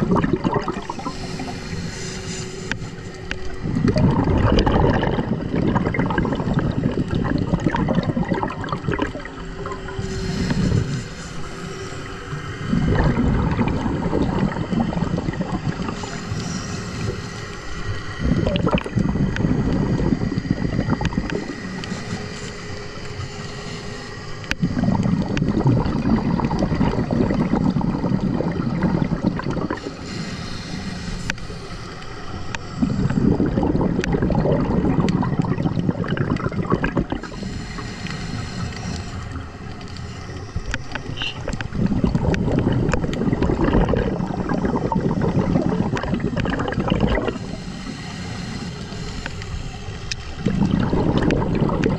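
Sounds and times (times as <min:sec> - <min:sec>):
exhaled bubbles gurgling underwater: 0:00.0 - 0:51.9
regulator hissing inhales: 0:00.8 - 0:03.5, 0:09.8 - 0:12.6, 0:15.6 - 0:18.2, 0:21.4 - 0:24.9, 0:29.7 - 0:33.4, 0:37.2 - 0:41.6, 0:47.3 - 0:50.7.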